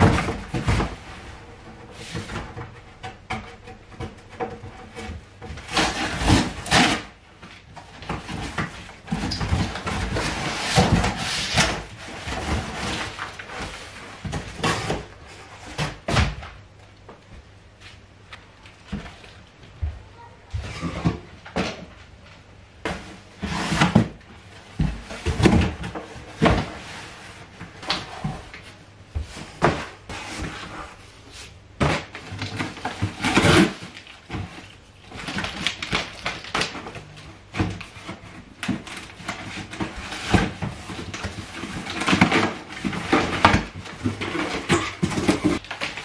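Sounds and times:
cardboard scraping and rustling: 0:00.0 - 0:16.5, 0:17.7 - 0:46.0.

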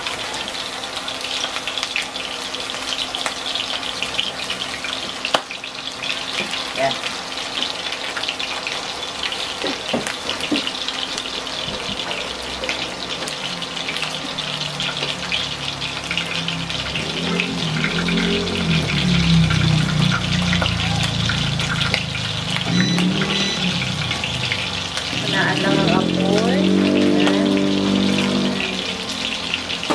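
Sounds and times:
meatballs sizzling in hot oil: 0:00.0 - 0:29.9
low droning sound: 0:14.6 - 0:29.9.

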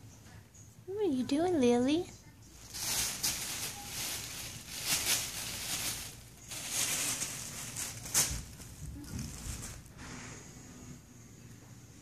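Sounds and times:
plastic bag crinkling: 0:02.6 - 0:10.1.

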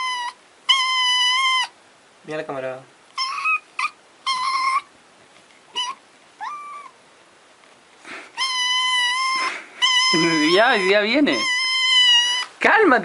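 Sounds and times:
kitten meowing: 0:00.0 - 0:01.7, 0:03.2 - 0:04.9, 0:05.7 - 0:07.0, 0:08.3 - 0:12.6.

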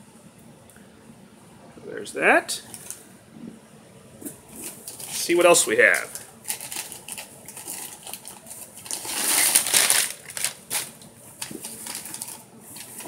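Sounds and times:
packing material crinkling: 0:02.6 - 0:03.0, 0:04.2 - 0:13.0.

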